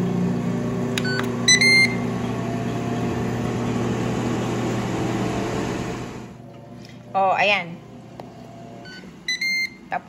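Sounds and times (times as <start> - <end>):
grill fan humming: 0.0 - 10.0
control panel beeps: 1.0 - 2.0, 8.8 - 9.8.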